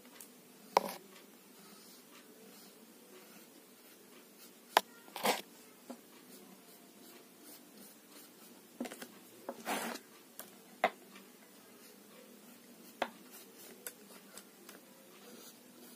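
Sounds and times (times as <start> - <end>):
faint room hiss: 0.0 - 15.9
paintbrush rubbing on paper: 6.2 - 8.6, 9.5 - 10.0, 11.8 - 15.9.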